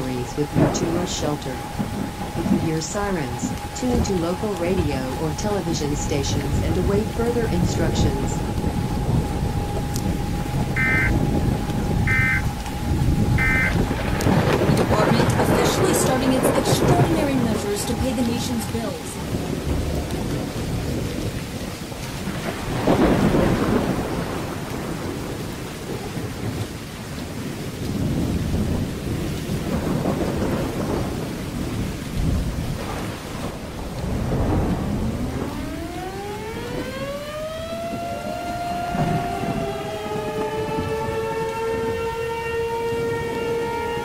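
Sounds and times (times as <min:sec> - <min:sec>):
heavy rain: 0:00.0 - 0:44.0
rumbling thunder: 0:00.0 - 0:44.0
warning siren winding up: 0:07.9 - 0:14.3.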